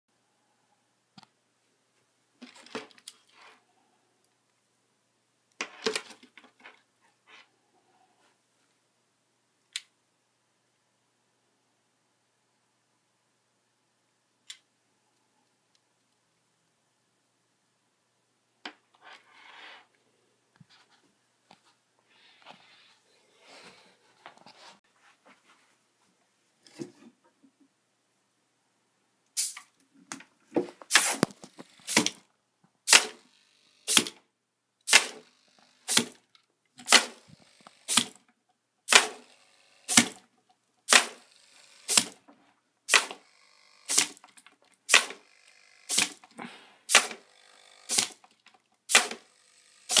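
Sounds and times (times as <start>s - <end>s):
robot servo bursts: 30.9s - 32.2s, 32.9s - 34.2s, 34.9s - 36.2s, 36.8s - 38.2s, 38.9s - 40.2s, 40.9s - 42.2s, 42.9s - 44.3s, 44.9s - 46.3s, 46.9s - 48.3s, 48.9s - 50.0s.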